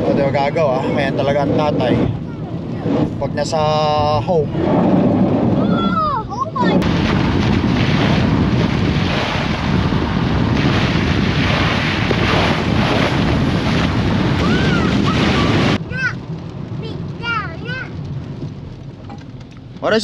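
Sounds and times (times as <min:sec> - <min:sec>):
wind rushing over microphone: 0:00.0 - 0:20.0.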